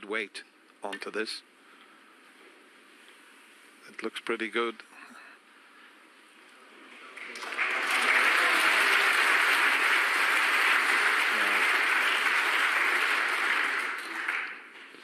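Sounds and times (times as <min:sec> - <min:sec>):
audience applauding: 0:07.2 - 0:15.0.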